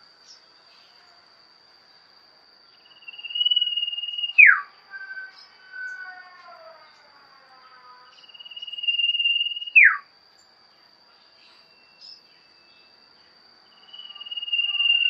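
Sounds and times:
bird trilling whistle: 0:02.9 - 0:06.3, 0:08.2 - 0:10.0, 0:13.8 - 0:15.0.

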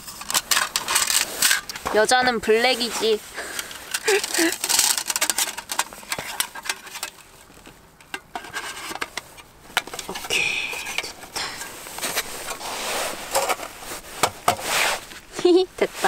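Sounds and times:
brief rustle or scrape: 0:08.4 - 0:15.3.

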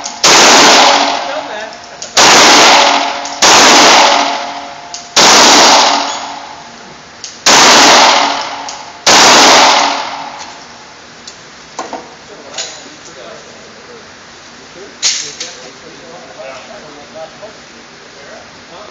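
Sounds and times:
handgun shots echoing indoors: 0:00.0 - 0:01.4, 0:02.0 - 0:06.7, 0:07.4 - 0:10.7.

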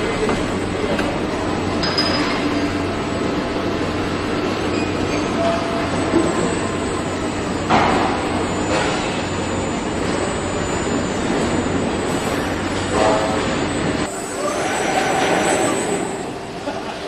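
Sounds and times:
robotic welding line running: 0:00.0 - 0:16.6.

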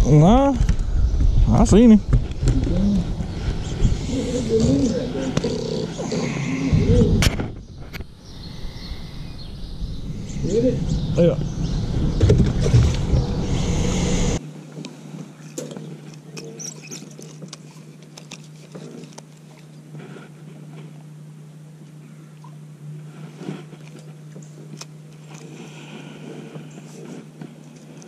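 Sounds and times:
wind rumble: 0:00.0 - 0:14.4
steady low hum: 0:00.0 - 0:28.0.

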